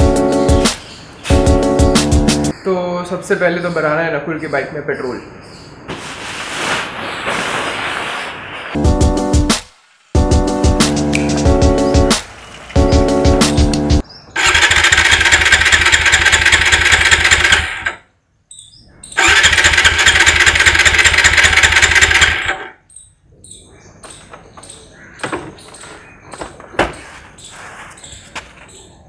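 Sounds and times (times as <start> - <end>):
motorcycle starter cranking: 14.4 - 18.0, 19.2 - 22.8.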